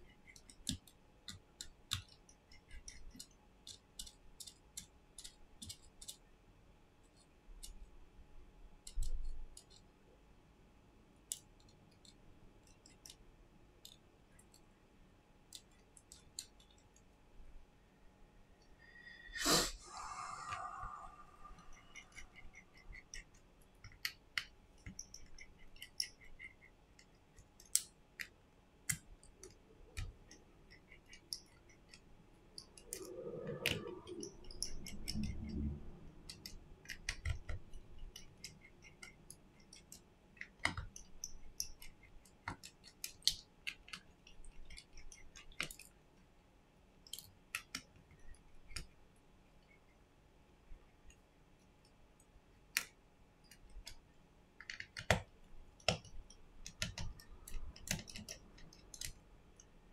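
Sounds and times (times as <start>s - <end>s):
screwdriver clicks and taps: 36.3s - 44.0s, 54.6s - 59.7s.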